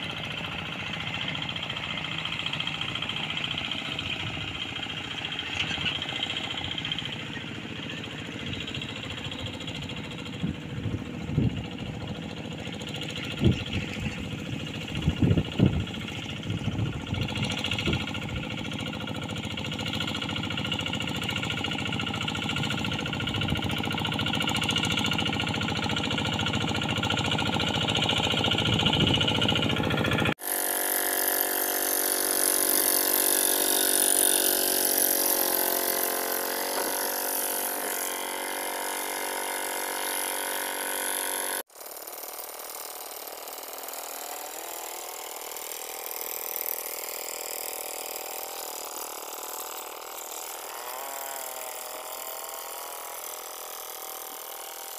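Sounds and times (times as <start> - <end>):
diesel engine running: 0.0 - 42.2.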